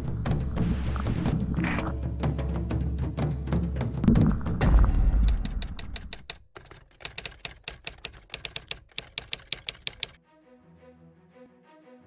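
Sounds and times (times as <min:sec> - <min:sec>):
typewriter keys clacking: 0:05.3 - 0:10.2
soft music: 0:10.2 - 0:12.0.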